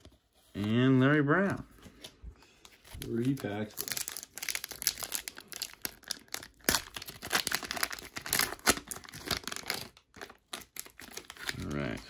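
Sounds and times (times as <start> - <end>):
foil wrapper tearing and crinkling: 3.0 - 12.0.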